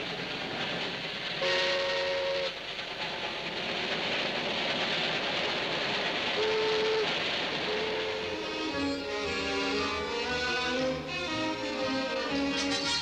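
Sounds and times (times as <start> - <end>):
steam train rushing past: 0.0 - 13.0
train chime whistle blasts: 12.5 - 13.0.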